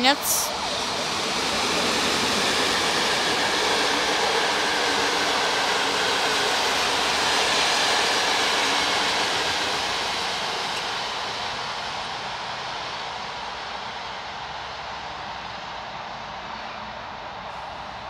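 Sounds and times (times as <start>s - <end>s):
train wheels on rails: 0.0s - 18.0s.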